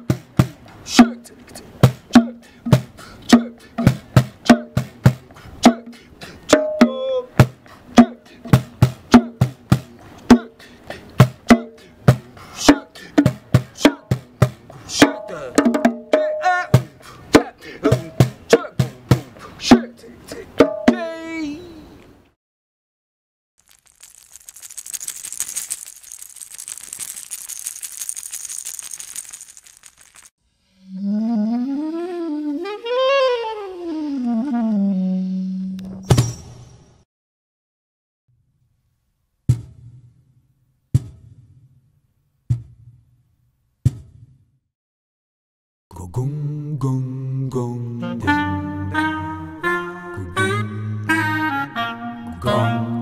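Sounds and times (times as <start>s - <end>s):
bongos played by hand: 13.2s - 16.4s
percussion rattle shaken: 23.6s - 30.4s
short wavering vocal sound: 30.7s - 35.8s.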